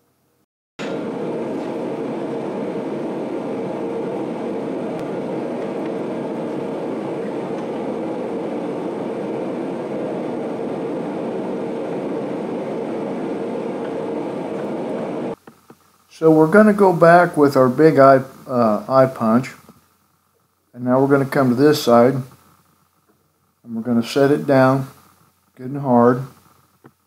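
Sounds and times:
forge roaring: 0.8 - 15.4.

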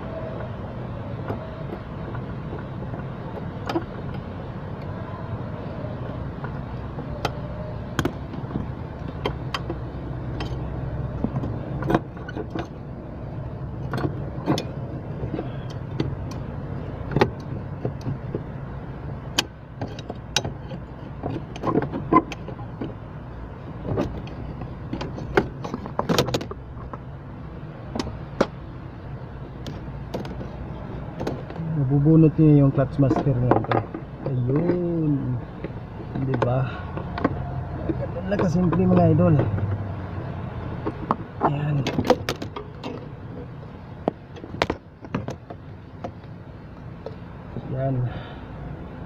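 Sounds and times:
tool clicks and metallic knocks: 19.2 - 23.0, 23.8 - 27.1, 33.0 - 39.7, 40.8 - 43.2.

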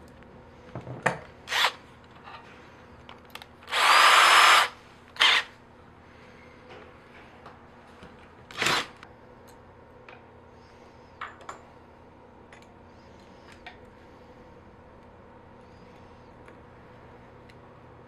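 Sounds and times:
power drill drilling metal: 3.7 - 5.5.

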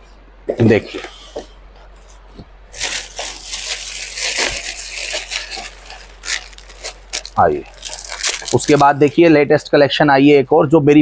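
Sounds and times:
packaging crinkling and rattling: 2.7 - 9.4.

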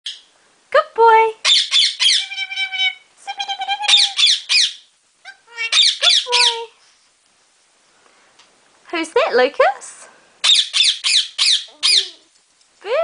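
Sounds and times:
parrot squawking: 1.4 - 6.7, 10.4 - 12.3.

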